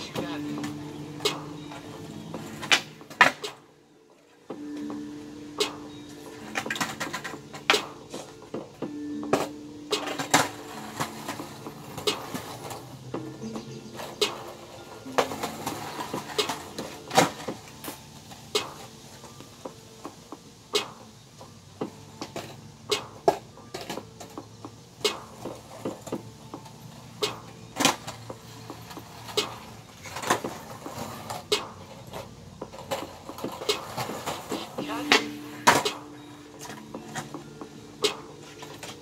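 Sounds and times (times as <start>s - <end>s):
skateboards clacking on concrete: 0.0s - 39.0s.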